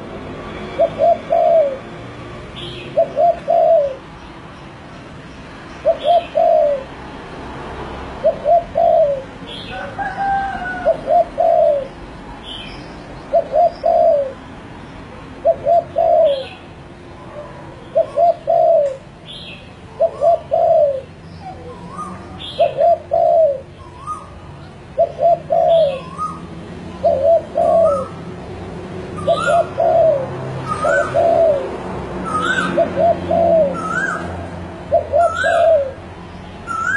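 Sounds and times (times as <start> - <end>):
dove cooing: 0.7 - 1.9, 2.6 - 4.1, 5.8 - 7.0, 8.2 - 12.0, 13.3 - 14.4, 15.4 - 19.1, 19.9 - 28.2, 29.1 - 36.0
small birds chirping: 2.5 - 6.9, 11.0 - 28.2, 29.0 - 34.2, 34.9 - 36.9.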